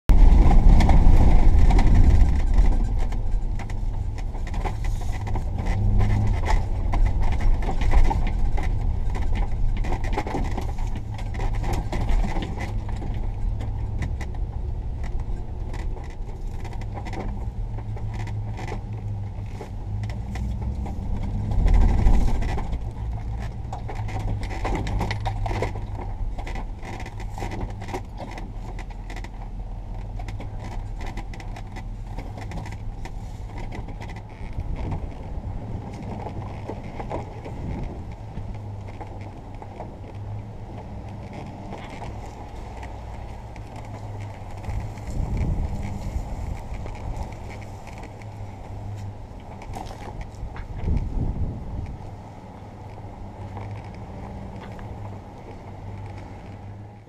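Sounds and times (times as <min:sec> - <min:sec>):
van engine and road rumble: 0:00.0 - 0:57.0.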